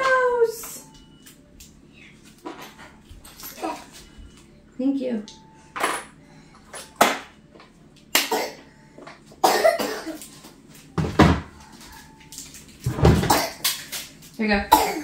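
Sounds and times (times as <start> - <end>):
items knocking and clattering: 10.3 - 14.2.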